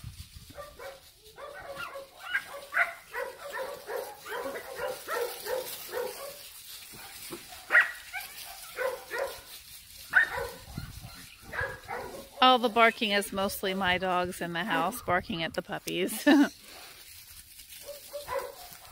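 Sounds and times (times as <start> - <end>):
dogs barking: 0.5 - 9.5, 10.1 - 12.4, 17.8 - 18.9.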